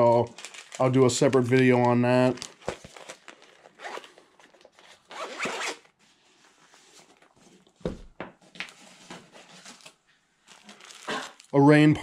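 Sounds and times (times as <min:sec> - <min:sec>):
bag zipper being pulled: 0:05.1 - 0:05.8.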